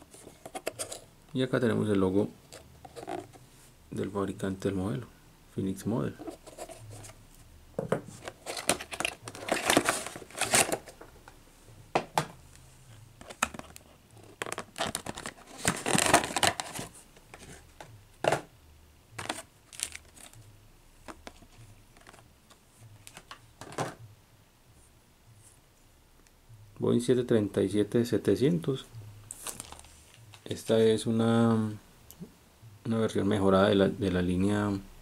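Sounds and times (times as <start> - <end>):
plastic packaging crinkling: 8.2 - 11.0, 13.2 - 16.9, 19.2 - 20.4, 29.3 - 30.4.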